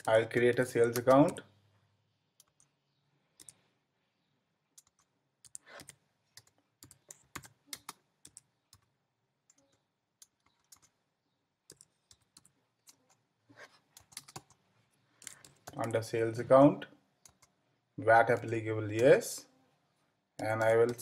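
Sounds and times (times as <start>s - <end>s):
computer keyboard typing: 0.0s - 1.5s, 2.3s - 3.7s, 4.7s - 11.0s, 11.6s - 16.1s, 17.2s - 17.6s, 20.4s - 21.0s.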